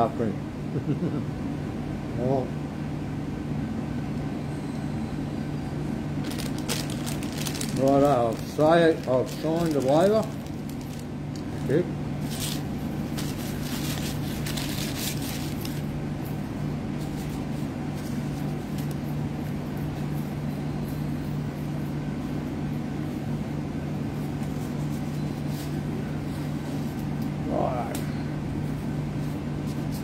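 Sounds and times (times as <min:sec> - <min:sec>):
low machine hum: 0:00.0 - 0:30.0
rustling and crackling: 0:06.2 - 0:15.9.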